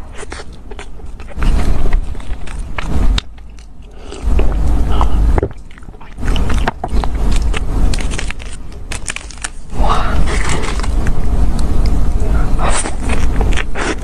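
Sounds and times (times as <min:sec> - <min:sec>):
chewing with wet mouth clicks: 0:00.1 - 0:08.6
paper wrapper crinkling: 0:06.4 - 0:11.2.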